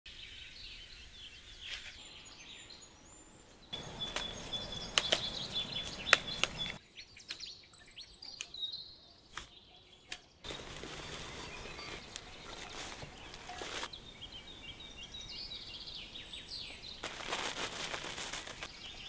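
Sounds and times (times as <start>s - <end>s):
birds chirping and whistling: 0.2s - 17.1s
leaf rustle: 3.8s - 6.8s, 10.4s - 14.1s, 16.2s - 19.0s
stems snapping: 3.8s - 7.5s, 9.3s - 9.5s.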